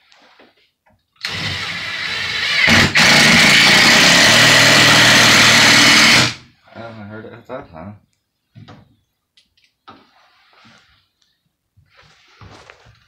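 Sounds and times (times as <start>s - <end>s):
cordless drill driving screw: 1.2s - 6.4s.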